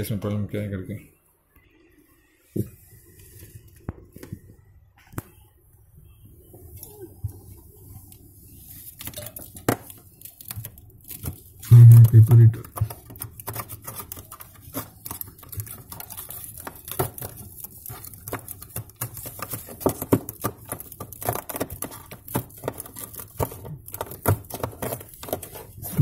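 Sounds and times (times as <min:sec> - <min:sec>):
fingers and plastic picking at ice: 0:09.0 - 0:26.0.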